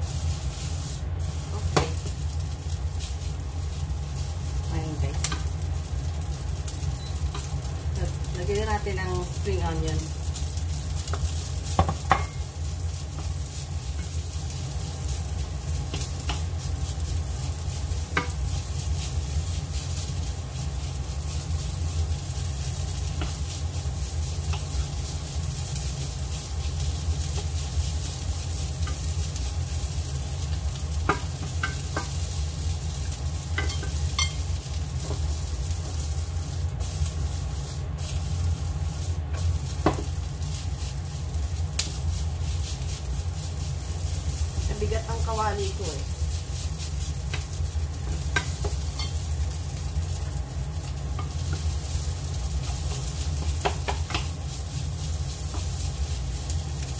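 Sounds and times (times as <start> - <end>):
rice sizzling in a pan: 0.0 - 56.9
spatula stirring and scraping: 0.0 - 56.9
spatula knocking on pan: 11.1 - 12.4, 31.0 - 32.2, 33.5 - 34.4, 39.8 - 40.1, 53.4 - 54.3.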